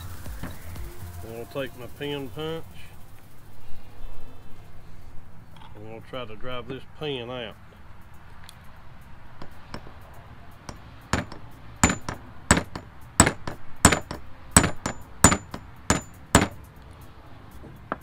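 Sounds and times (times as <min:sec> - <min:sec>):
hammer striking metal punch: 0:09.4 - 0:10.0, 0:10.7 - 0:16.7.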